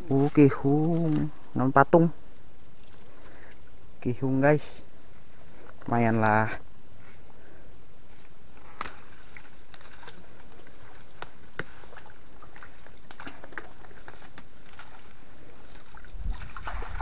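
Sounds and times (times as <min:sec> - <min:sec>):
steady high-pitched hiss: 0:00.0 - 0:17.0
small water splashes and drips: 0:08.8 - 0:17.0.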